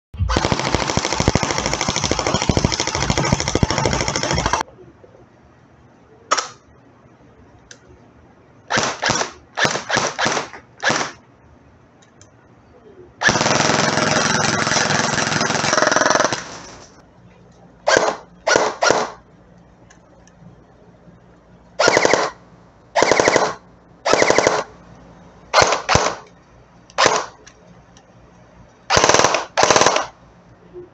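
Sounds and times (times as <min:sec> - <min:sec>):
electric airsoft gun bursts: 0:00.2 - 0:04.6, 0:08.7 - 0:11.2, 0:13.2 - 0:17.0, 0:17.9 - 0:19.2, 0:21.8 - 0:22.4, 0:23.0 - 0:24.7, 0:25.5 - 0:26.3, 0:27.0 - 0:27.4, 0:28.9 - 0:30.2.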